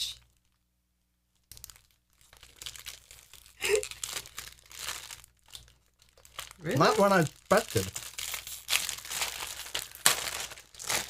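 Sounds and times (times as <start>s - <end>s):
plastic bread bag crinkling: 1.4s - 11.0s
short voice sound: 6.6s - 7.8s.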